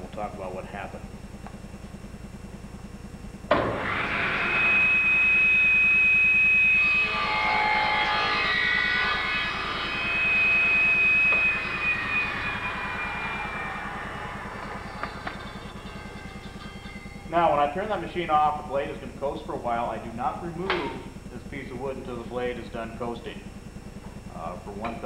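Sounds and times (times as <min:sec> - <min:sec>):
table saw whine: 0:00.2 - 0:25.0
saw cutting board: 0:03.5 - 0:16.8.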